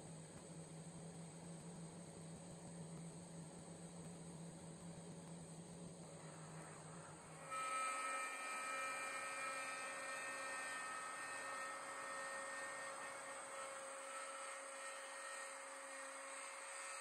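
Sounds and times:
router whining cutting wood: 7.4 - 17.0.

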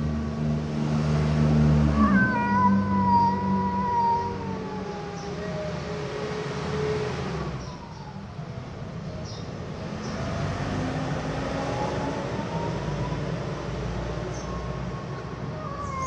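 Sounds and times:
vehicle engine rumbling: 0.0 - 16.0
cats yowling: 1.8 - 6.3, 7.4 - 8.4, 12.1 - 16.0.

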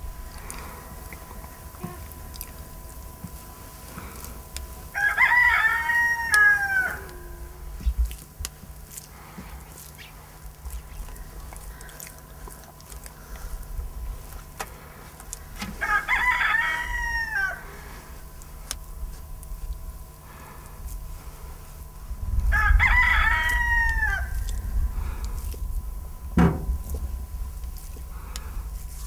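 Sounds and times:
rooster crowing: 4.9 - 7.6, 15.8 - 17.8, 22.4 - 24.5.

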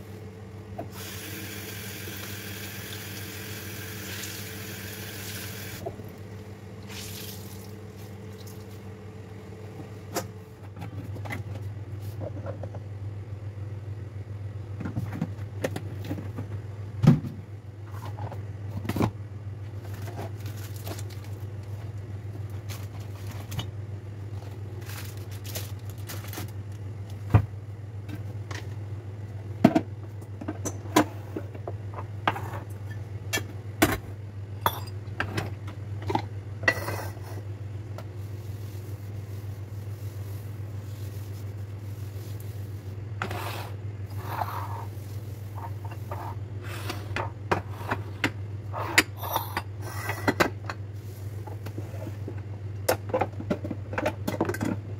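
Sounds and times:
steady low hum: 0.0 - 2.6, 5.0 - 54.9
wet cloth rinsed at sink: 1.0 - 5.8, 6.8 - 8.8
cloth wiping marble countertop: 38.2 - 46.9.

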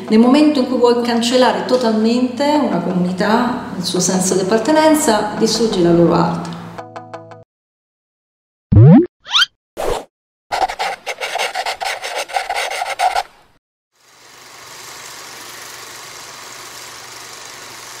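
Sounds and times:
rapid scratchy rasping strokes: 10.5 - 13.4.

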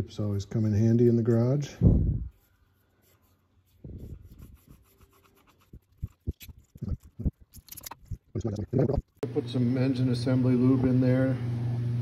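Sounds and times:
quick rubbing strokes: 2.3 - 8.2
cotton swab scrubbing in holes: 2.3 - 9.0.

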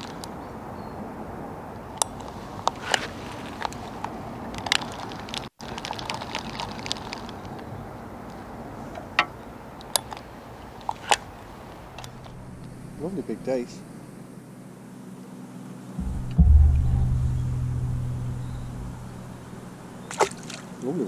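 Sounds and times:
steady background hiss: 7.8 - 20.8.

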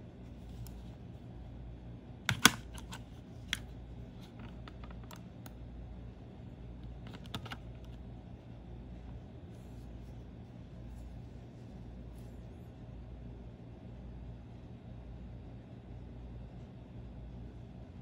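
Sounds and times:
battery clicking into compartment: 2.3 - 3.6, 7.0 - 8.0
plastic mouse clicks and taps: 2.3 - 5.6, 6.8 - 8.0.

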